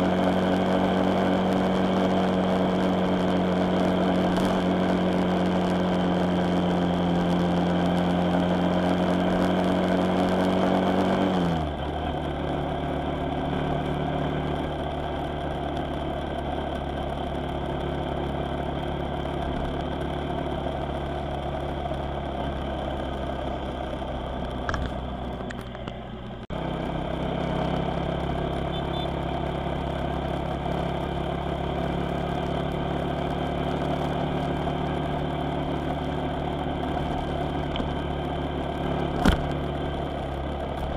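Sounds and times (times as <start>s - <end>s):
vehicle engine running: 0.0s - 40.9s.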